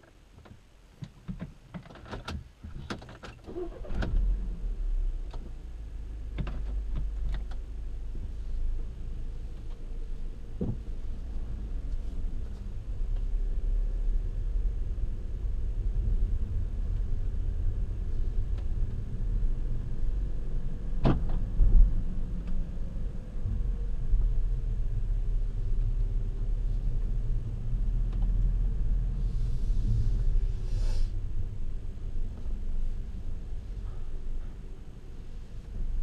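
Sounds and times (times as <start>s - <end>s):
car engine and road rumble: 0.0s - 36.0s
short hissing noise: 29.2s - 31.2s.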